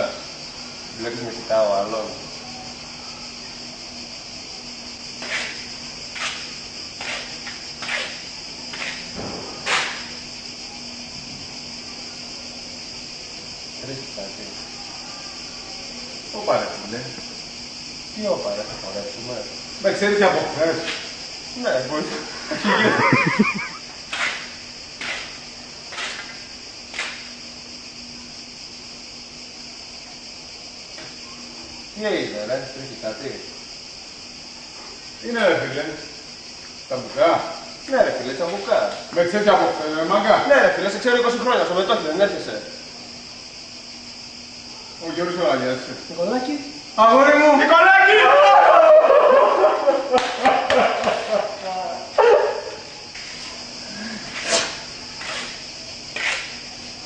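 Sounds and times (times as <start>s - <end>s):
insect chorus: 0.0s - 57.0s.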